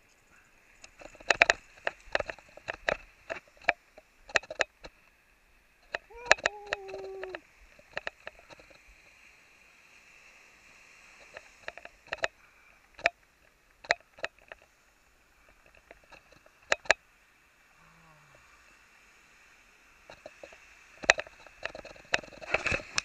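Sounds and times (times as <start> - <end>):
faint steady hiss: 0.0 - 23.0
sharp clicks and taps: 5.8 - 8.7.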